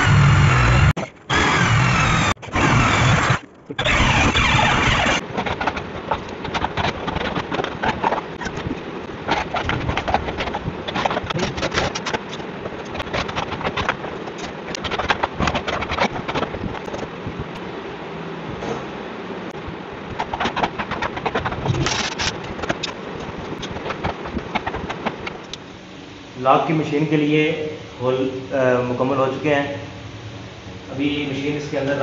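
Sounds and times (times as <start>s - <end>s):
electric drill boring into wood: 0.0s - 5.2s.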